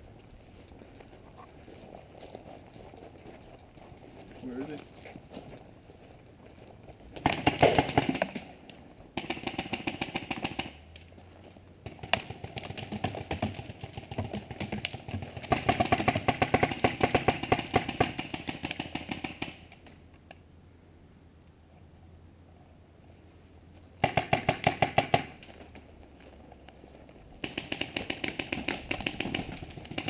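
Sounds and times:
paintball marker rapid firing: 0:07.2 - 0:08.4, 0:09.2 - 0:10.8, 0:11.8 - 0:19.7, 0:24.0 - 0:25.4, 0:27.4 - 0:30.0.

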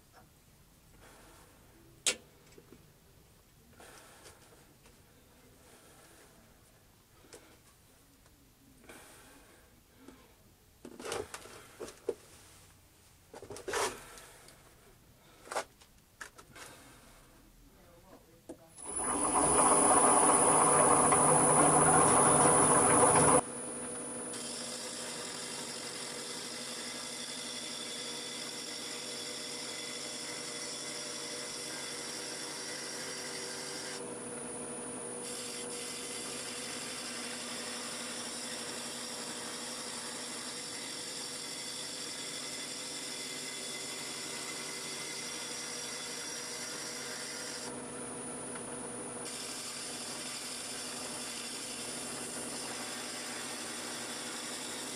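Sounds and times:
power tool whining: 0:18.8 - 0:54.9.

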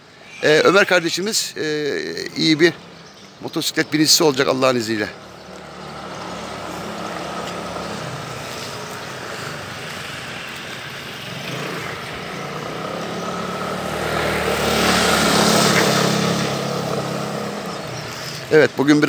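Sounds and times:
motor scooter engine: 0:05.2 - 0:19.0
tyres hissing on wet paving: 0:05.2 - 0:19.0.

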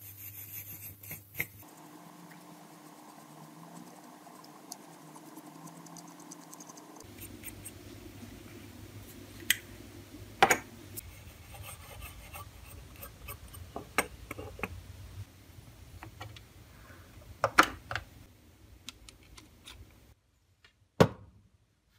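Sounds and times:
scratching and rubbing on metal: 0:00.0 - 0:01.6, 0:11.0 - 0:13.7
small ticks: 0:03.7 - 0:07.0.

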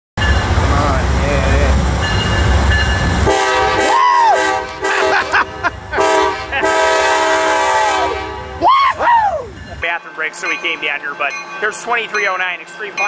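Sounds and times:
locomotive air horn blasts: 0:03.2 - 0:05.2, 0:06.0 - 0:08.6.

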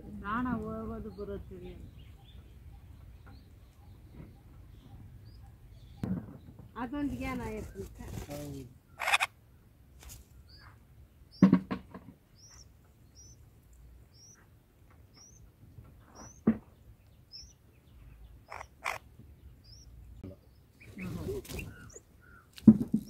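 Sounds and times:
birds chirping: 0:00.0 - 0:23.0
sharp knocks or rustles: 0:06.0 - 0:06.8, 0:11.4 - 0:12.2, 0:22.5 - 0:23.0.

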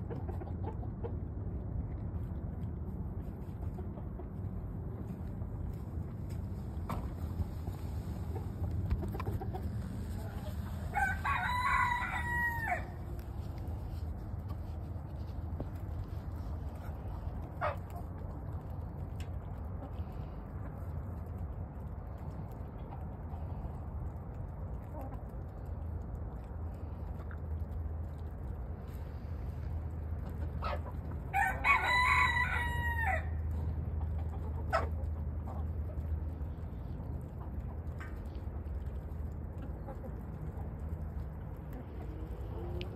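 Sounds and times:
steady low rumble: 0:00.0 - 0:42.9
chicken squawk: 0:08.3 - 0:13.2, 0:30.5 - 0:33.4
rooster crowing: 0:10.8 - 0:13.0, 0:31.3 - 0:33.4.

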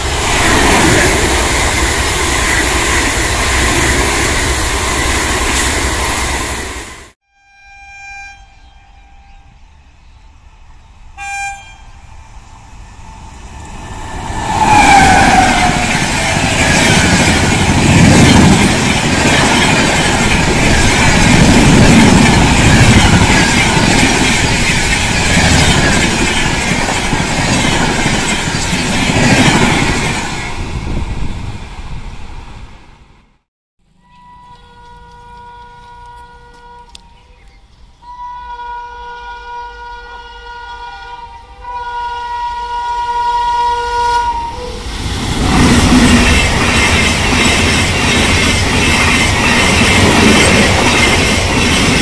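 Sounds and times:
train coaches rumbling past: 0:00.0 - 0:07.2, 0:08.4 - 0:33.3, 0:33.9 - 0:52.0
train horn blasts: 0:07.2 - 0:09.8, 0:11.2 - 0:12.1, 0:34.0 - 0:37.3, 0:38.0 - 0:44.8.

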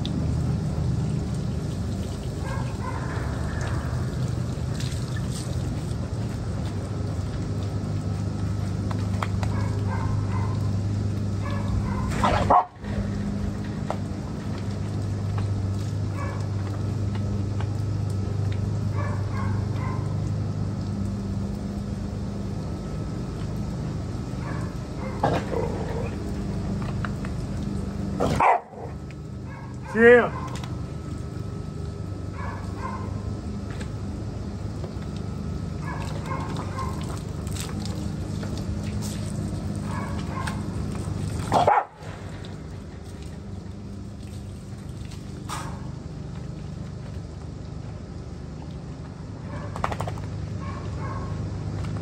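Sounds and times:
low hum: 0:00.0 - 0:52.0
dogs barking and yipping: 0:02.3 - 0:04.3, 0:09.3 - 0:12.8, 0:16.1 - 0:16.6, 0:18.9 - 0:20.2, 0:24.4 - 0:26.3, 0:28.2 - 0:30.8, 0:32.3 - 0:33.2, 0:35.8 - 0:37.6, 0:39.0 - 0:43.5, 0:49.4 - 0:51.5.

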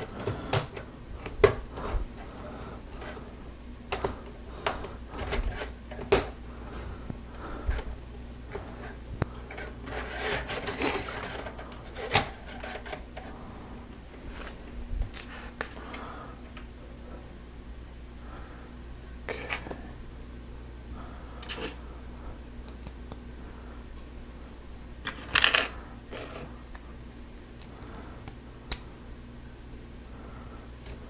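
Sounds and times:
plastic pieces rubbing and rattling: 0:03.9 - 0:06.4, 0:07.4 - 0:13.3, 0:25.0 - 0:26.5.

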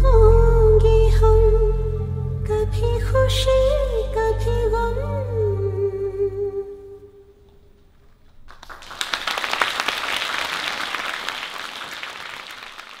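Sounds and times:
audience applause: 0:08.5 - 0:13.0.

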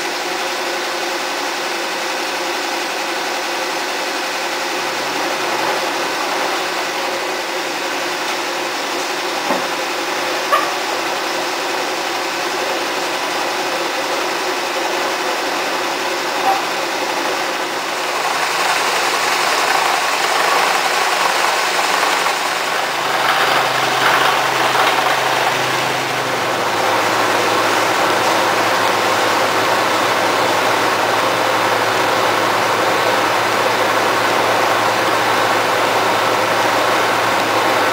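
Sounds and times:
milling machine cutting metal: 0:04.3 - 0:11.6, 0:16.0 - 0:37.9.

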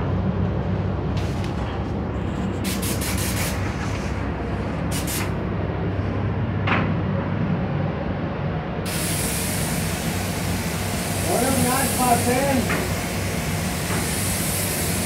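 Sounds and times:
ventilation drone: 0:00.0 - 0:15.0
spray gun hissing: 0:02.6 - 0:04.0, 0:04.9 - 0:05.3, 0:08.9 - 0:15.0.

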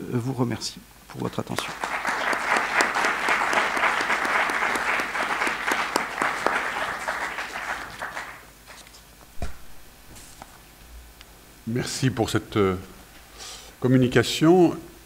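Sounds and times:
audience applauding: 0:01.6 - 0:08.9.

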